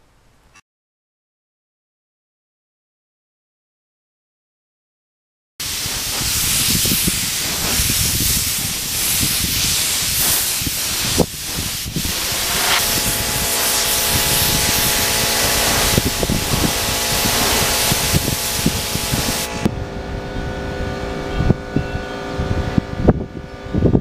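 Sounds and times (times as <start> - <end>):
spray gun air hissing: 5.6 - 19.7
steady hum: 5.6 - 21.8.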